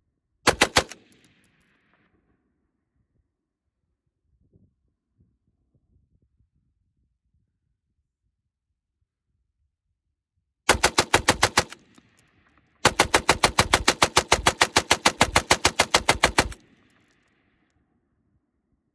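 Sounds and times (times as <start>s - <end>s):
machine gun bursts: 0.5s - 1.2s, 10.7s - 12.0s, 12.8s - 16.7s.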